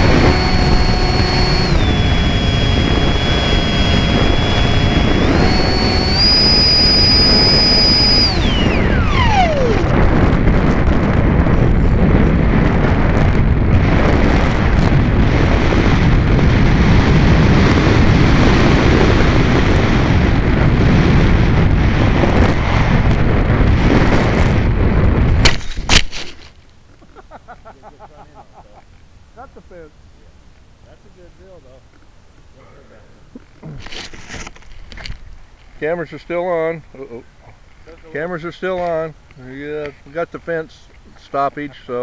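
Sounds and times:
electric motor whining: 0.0 - 10.9
wind rushing over camera: 0.0 - 26.6.

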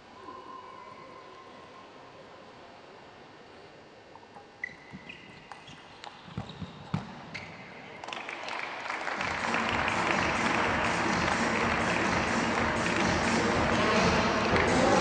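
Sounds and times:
crowd applause: 8.0 - 15.0.

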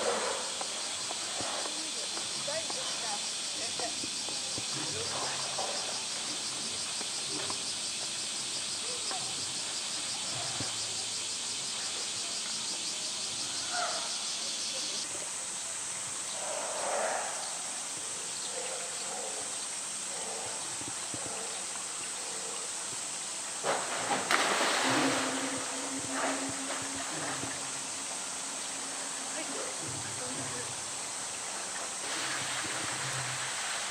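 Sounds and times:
insects buzzing: 0.0 - 33.9
bear splashing into water: 23.6 - 27.8, 31.5 - 33.9.

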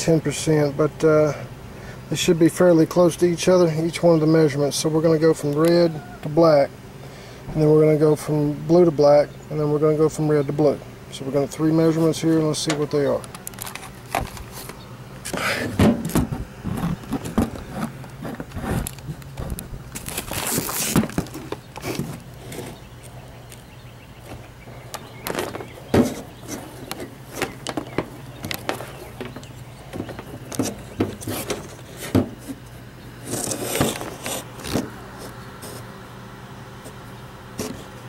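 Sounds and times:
low steady hum: 0.0 - 38.0
clicks knocks and scrapes: 12.7 - 22.8, 25.2 - 32.6, 33.2 - 35.9, 37.6 - 37.9.

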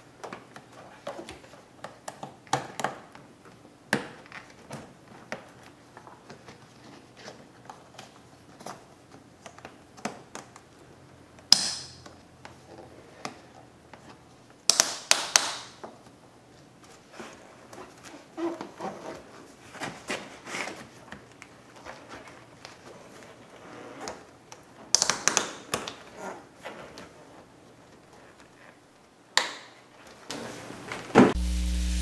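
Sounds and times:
hands and tools clicking: 14.7 - 15.6.

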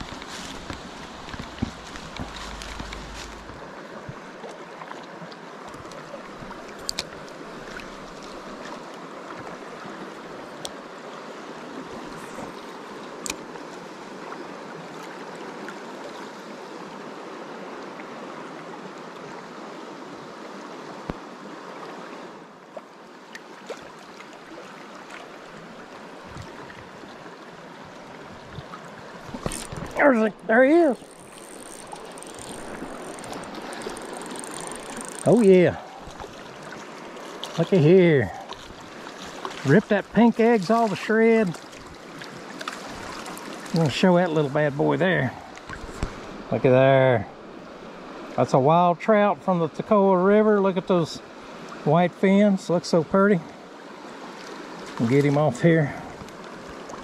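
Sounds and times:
river rushing over rocks: 0.0 - 4.3.

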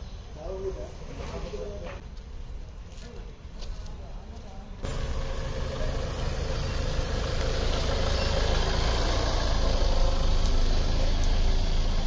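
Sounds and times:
van engine driving and idling: 4.8 - 12.0.

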